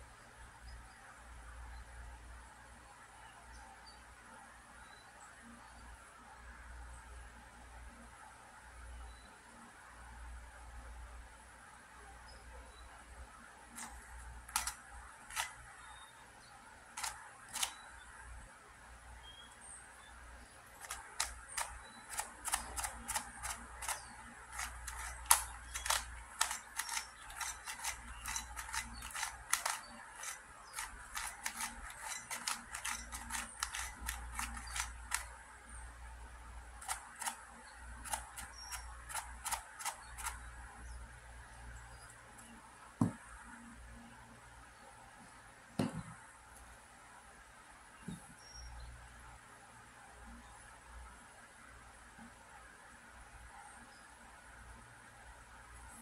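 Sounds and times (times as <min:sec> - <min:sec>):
plastic puzzle clicking as turned: 0:13.8 - 0:15.6, 0:17.0 - 0:17.8, 0:20.8 - 0:35.4, 0:36.8 - 0:40.4.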